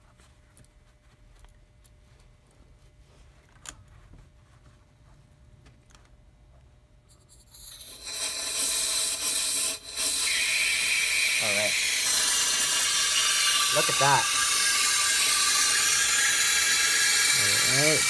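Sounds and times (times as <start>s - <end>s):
compressed air hissing: 7.6s - 18.0s.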